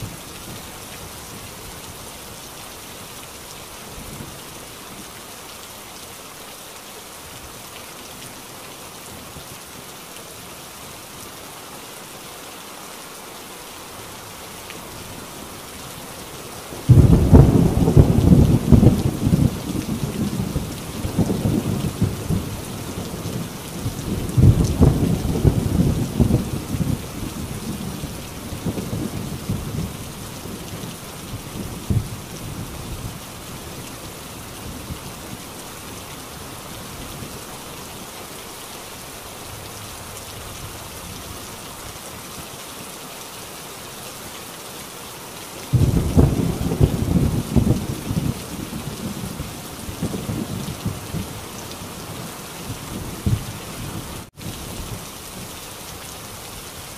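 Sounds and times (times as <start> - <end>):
heavy rain on a tin roof: 0.0 - 56.9
rolling thunder: 16.9 - 22.6, 45.7 - 49.4.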